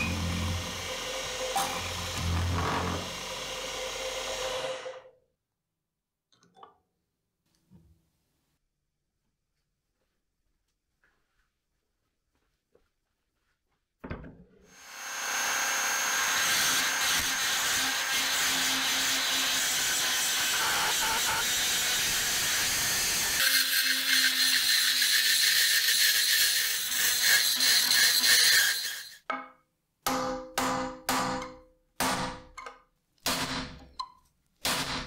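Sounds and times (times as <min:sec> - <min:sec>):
rotary tool grinding metal: 0:00.0 - 0:05.1, 0:14.8 - 0:29.2.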